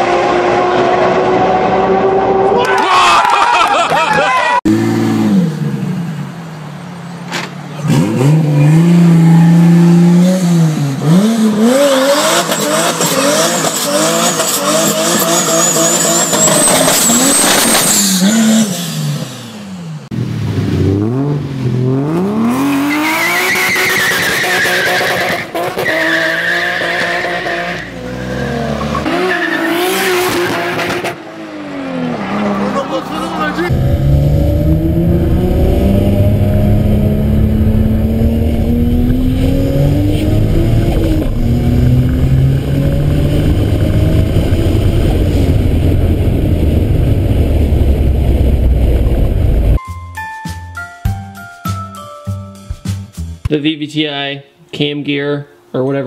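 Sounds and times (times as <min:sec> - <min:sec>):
car engine revving hard: 0:07.8 - 0:49.7
engine revving during burnout: 0:07.8 - 0:49.8
high whine: 0:33.0 - 0:49.8.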